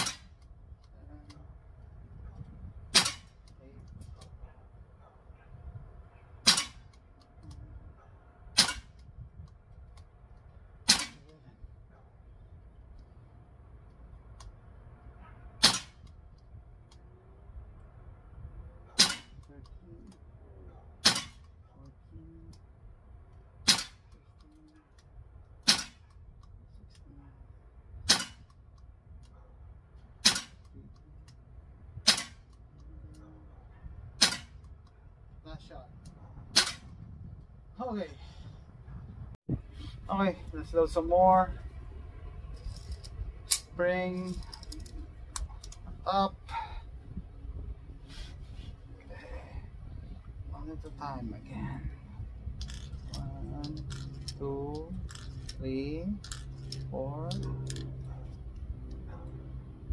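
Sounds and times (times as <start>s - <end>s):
air pistol shots: 0.0s - 0.4s, 2.9s - 3.5s, 6.4s - 7.0s, 8.6s - 9.0s, 10.8s - 11.3s, 15.6s - 16.1s, 18.9s - 19.4s, 21.0s - 21.5s, 23.6s - 24.1s, 25.6s - 26.1s, 28.0s - 28.5s, 30.2s - 30.7s, 32.0s - 32.5s, 34.2s - 34.7s.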